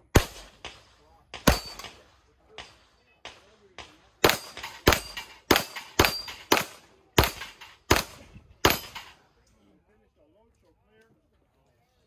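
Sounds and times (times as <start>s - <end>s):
gunshots: 0.0s - 9.2s.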